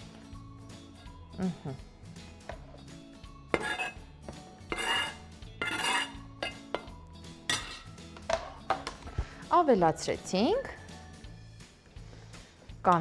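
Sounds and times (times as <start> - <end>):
knife scraping cutting board: 3.5 - 4.0, 4.7 - 6.8
knife and board knocking bowl: 3.5 - 9.0.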